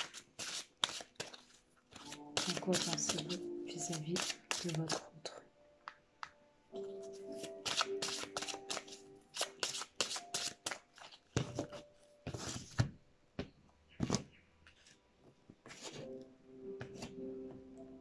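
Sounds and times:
cards being shuffled: 0.0s - 5.1s, 7.3s - 12.9s, 15.6s - 16.1s.

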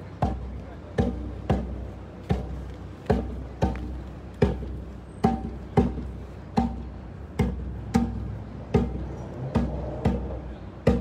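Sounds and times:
hand drum beating: 0.0s - 11.0s.

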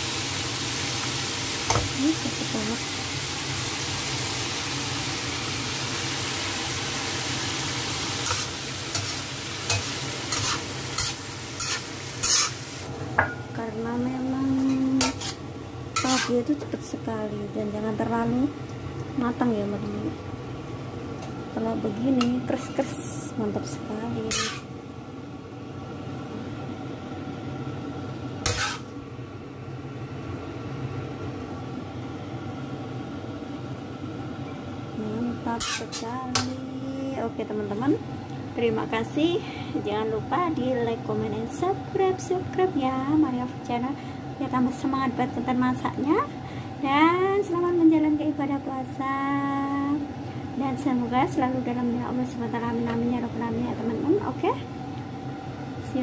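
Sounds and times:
food sizzling in a wok: 0.0s - 56.0s
kitchen hum: 0.0s - 56.0s
spatula scraping a wok: 8.1s - 12.9s, 14.6s - 15.4s, 16.0s - 16.5s, 24.3s - 24.7s, 28.4s - 28.9s, 35.6s - 36.5s.

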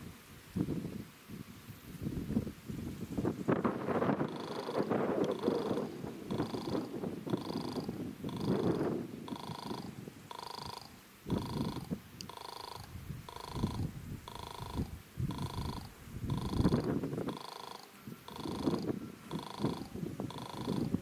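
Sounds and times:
wind rumble on microphone: 0.0s - 10.3s, 11.2s - 17.4s, 18.1s - 21.0s
pulsing electronic warning buzz: 4.1s - 21.0s.

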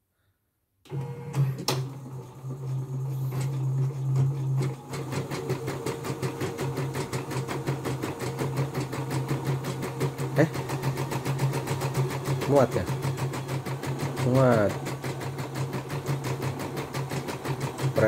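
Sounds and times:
embroidery machine motor hum: 0.9s - 18.0s.

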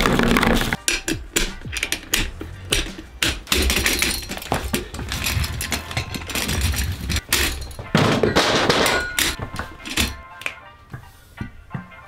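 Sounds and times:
loud rattle: 0.0s - 10.2s
metal and plastic parts clattering: 0.0s - 10.6s.

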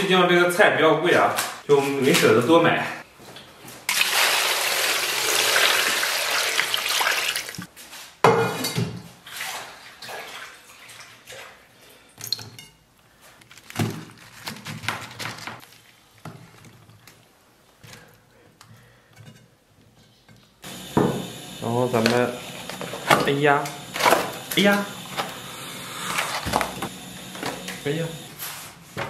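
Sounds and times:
water splashing into a metal bowl: 3.9s - 7.7s
handling vegetables: 13.3s - 17.8s.

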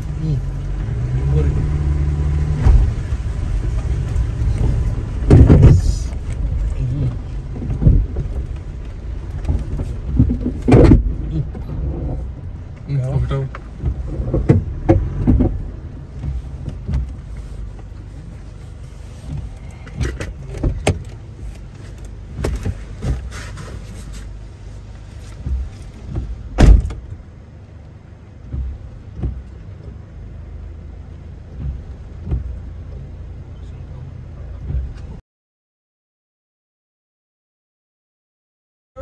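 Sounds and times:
vehicle engine low rumble: 0.0s - 35.2s
vehicle knocking over bumps: 3.7s - 12.5s, 13.5s - 17.3s.

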